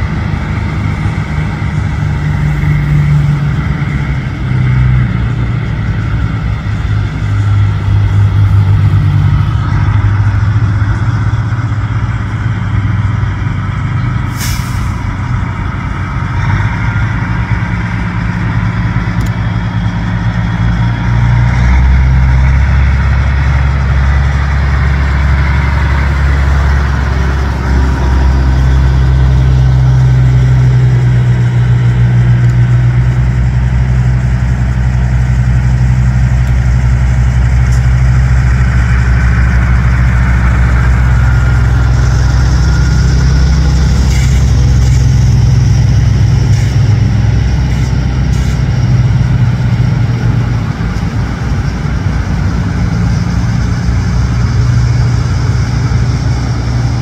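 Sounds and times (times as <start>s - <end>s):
diesel trucks rumbling past: 0.0s - 57.0s.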